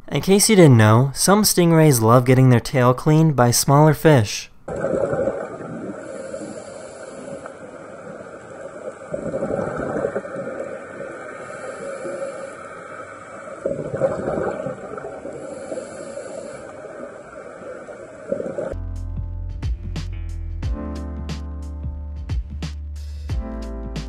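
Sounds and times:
exhaled breath bubbling: 0:04.7 - 0:18.7
underwater water noise hiss: 0:04.9 - 0:18.7.

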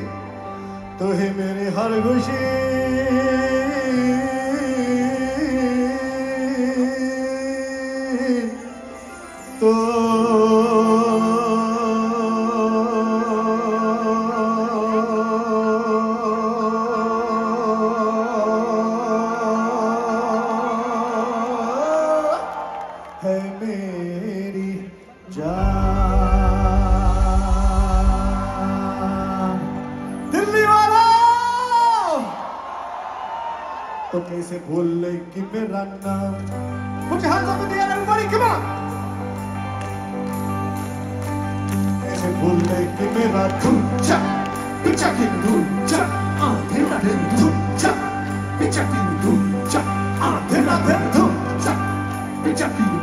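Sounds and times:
live band over pa: 0:00.0 - 0:53.0
heavy bass: 0:25.5 - 0:29.4.

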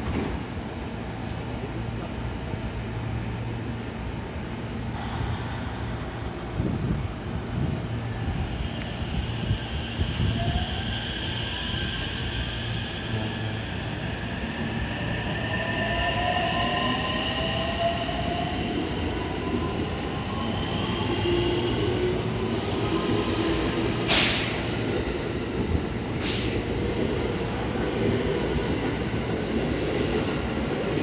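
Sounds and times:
wheels rumbling on rail: 0:00.0 - 0:17.0.

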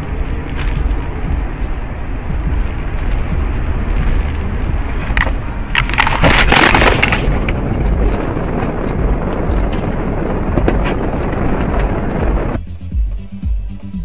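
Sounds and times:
road noise: 0:00.0 - 0:14.0
car crash impacts: 0:05.2 - 0:12.0.

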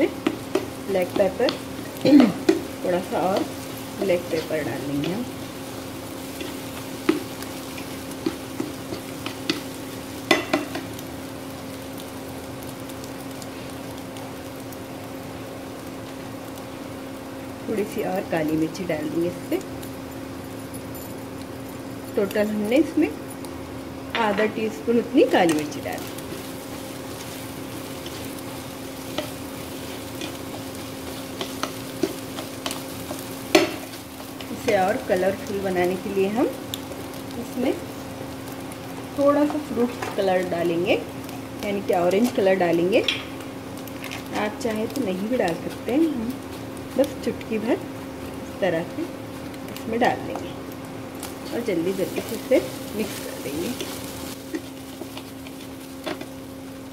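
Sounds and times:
turner scraping and tapping pan: 0:00.0 - 0:11.0, 0:25.4 - 0:36.1, 0:38.5 - 0:40.5, 0:51.2 - 0:56.4
egg sizzling in a frying pan: 0:00.0 - 0:56.9
steady hum: 0:00.0 - 0:56.9.

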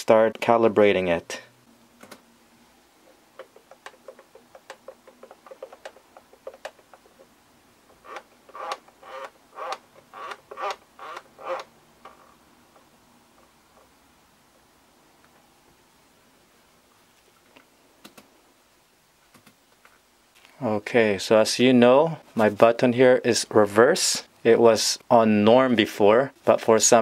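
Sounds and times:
radio transmitter sticks clicking: 0:03.3 - 0:07.3.

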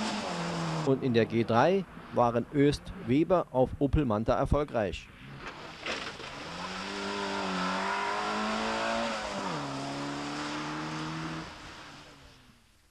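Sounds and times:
rally car engine passing: 0:00.0 - 0:03.1, 0:05.1 - 0:12.6.

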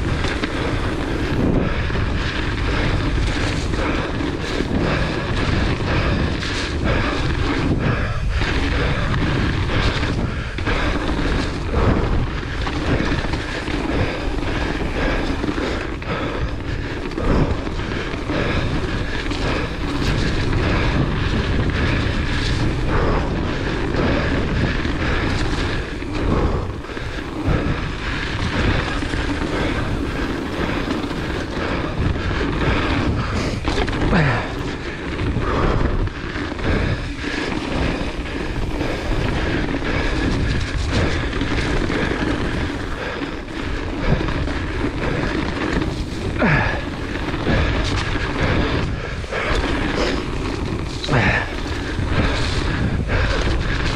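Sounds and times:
bike rattling and knocking: 0:00.0 - 0:53.9
tyre rumble: 0:00.0 - 0:53.9
wind buffeting microphone: 0:00.0 - 0:53.9.

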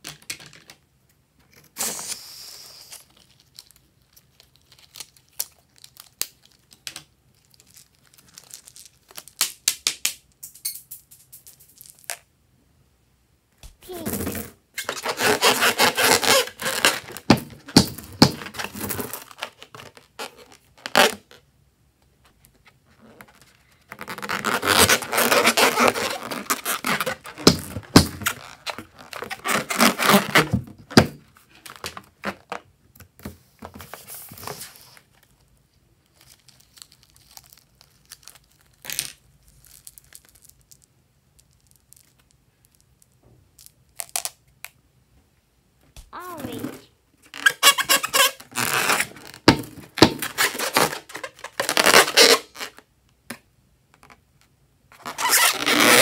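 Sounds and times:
hands rubbing rubber balloon: 0:14.9 - 0:19.3, 0:23.0 - 0:31.2.

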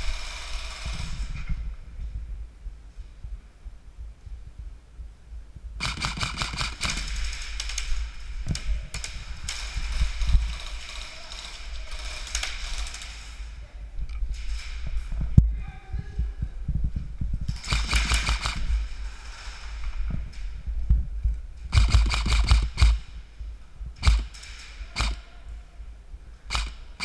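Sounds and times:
airsoft guns firing bursts: 0:00.0 - 0:01.2, 0:05.8 - 0:13.2, 0:17.5 - 0:18.9, 0:21.7 - 0:23.1, 0:24.0 - 0:25.3, 0:26.5 - 0:27.0
low rumble of movement: 0:00.0 - 0:27.0.

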